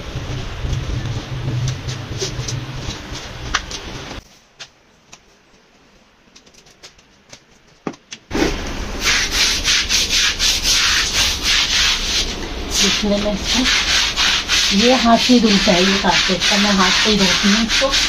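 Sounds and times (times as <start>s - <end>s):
brush scrubbing wet rug: 8.3s - 18.0s.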